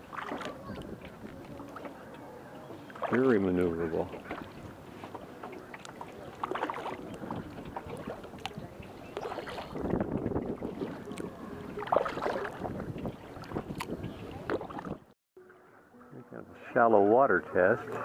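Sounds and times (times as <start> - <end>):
paddle strokes through water: 0.0 - 16.0
water dripping from paddle blades: 4.0 - 9.7.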